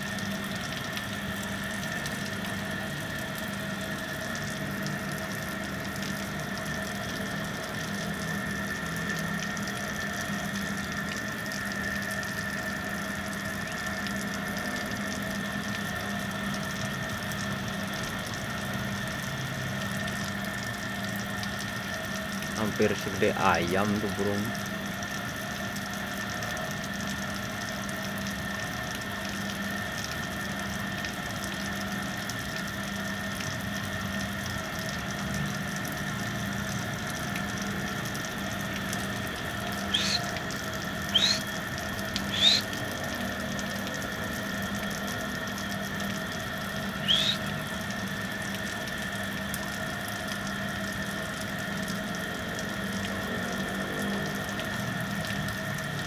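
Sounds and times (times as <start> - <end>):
rising bird chirps: 39.9 - 40.4, 41.1 - 41.5, 42.3 - 42.7, 47.0 - 47.4.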